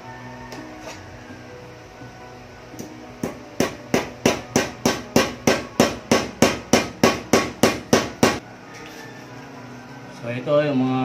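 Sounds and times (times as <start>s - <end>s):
hammer knocking on metal shaft: 3.2s - 8.4s.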